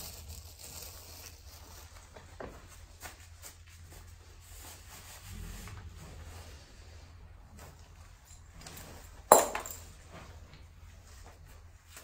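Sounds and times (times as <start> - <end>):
newspaper rustling: 0.0 - 4.9.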